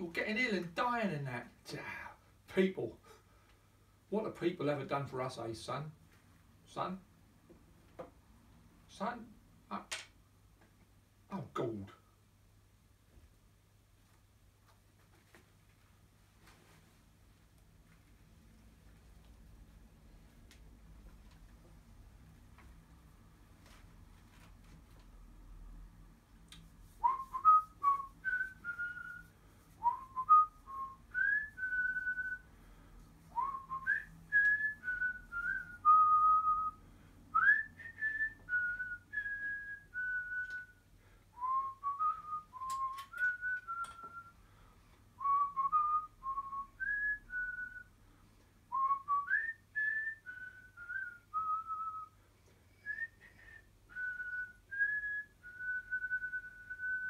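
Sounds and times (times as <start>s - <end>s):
person whistling a tune: 27.0s - 32.4s, 33.4s - 36.8s, 37.4s - 40.8s, 41.4s - 44.4s, 45.2s - 47.9s, 48.7s - 57.0s.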